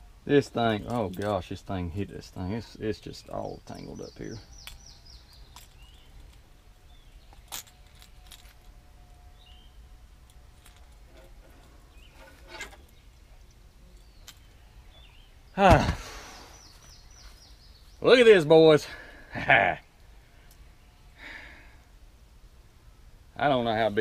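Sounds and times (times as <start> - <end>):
faint bird chirps: 2.5 - 9.9, 11.5 - 18.4.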